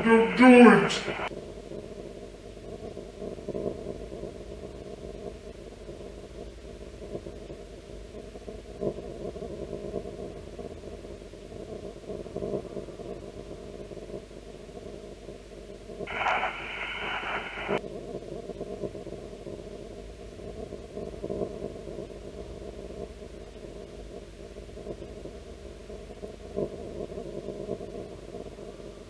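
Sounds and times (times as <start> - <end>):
burst of noise: 16.1 - 17.8
steady low hum: 16.1 - 17.8.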